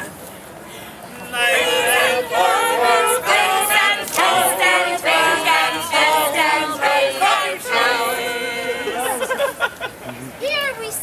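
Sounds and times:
group singing a cappella: 1.2s - 9.4s.

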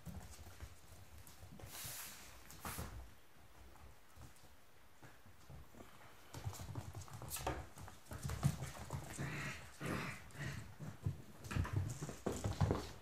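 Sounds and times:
puppy claws clicking on floor: 6.2s - 13.0s.

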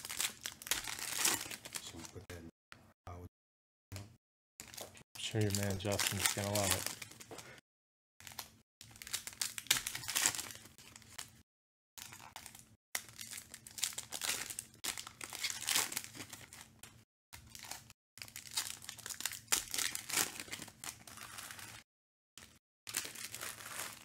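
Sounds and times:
foil wrappers crinkling: 0.0s - 2.0s, 4.6s - 7.4s, 8.2s - 11.3s, 22.4s - 24.0s.

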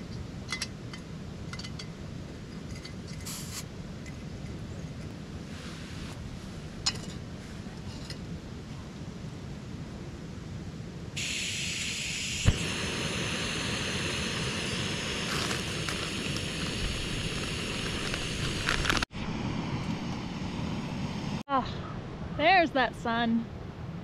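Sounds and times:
gas hissing from stove: 3.2s - 3.6s, 11.2s - 19.1s
burner hissing: 3.2s - 3.7s, 11.2s - 21.5s.

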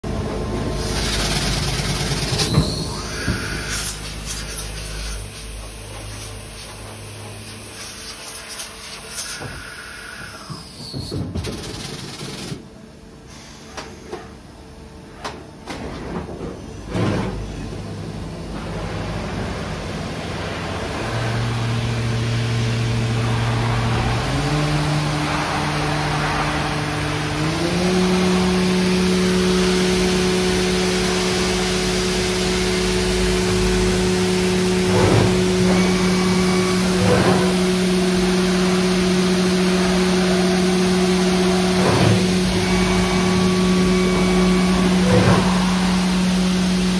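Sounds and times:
low motor hum: 16.8s - 46.9s.

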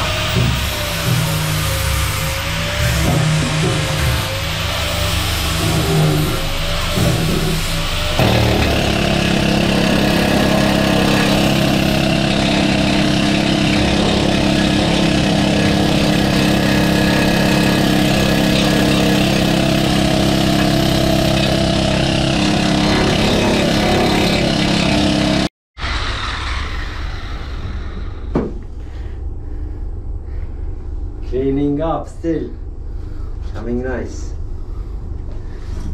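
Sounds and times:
angle grinder grinding steel: 0.0s - 26.4s
knock: 28.3s - 28.6s.

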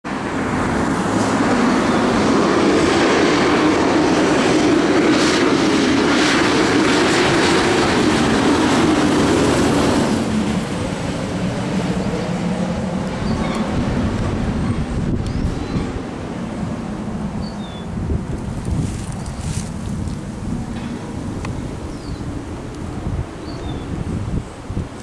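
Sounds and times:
fire engine siren and engine: 0.1s - 15.0s.

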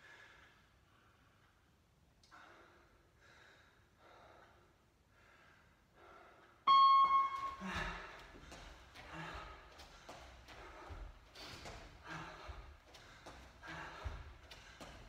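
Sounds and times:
man breathing hard: 2.3s - 6.6s, 7.6s - 15.0s
timer beep: 6.7s - 8.0s.

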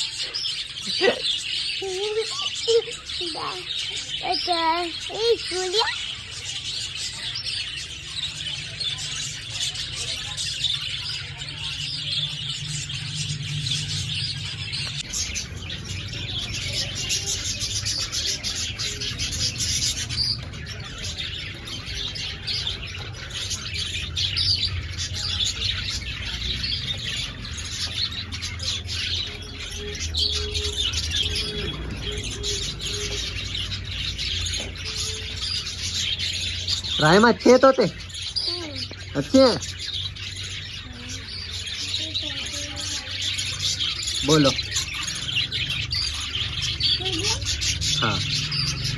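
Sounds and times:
budgerigars chattering and chirping: 0.0s - 48.9s.

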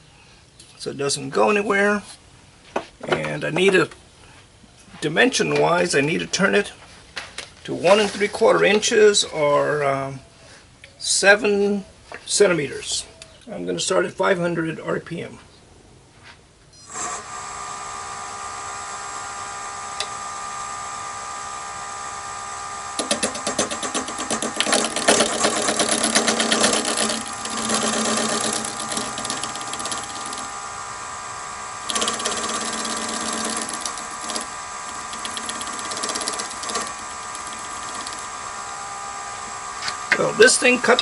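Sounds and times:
wood lathe humming: 17.0s - 41.0s
gouge cutting spinning plastic: 19.0s - 40.3s.

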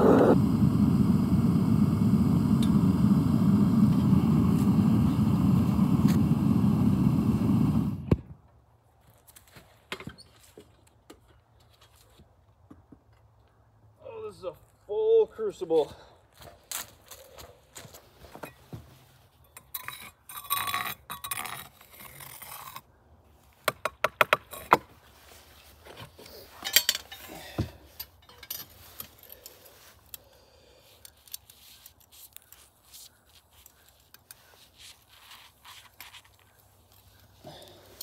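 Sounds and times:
metal scrap clinking: 26.6s - 29.6s.

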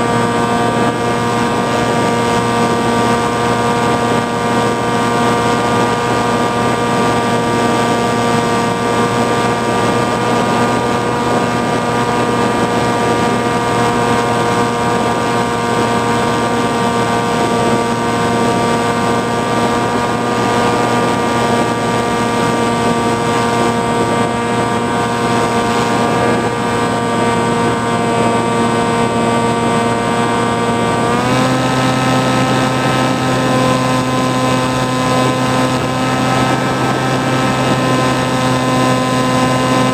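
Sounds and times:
wind rushing: 0.0s - 38.3s
model aircraft motor whine: 0.0s - 39.9s.

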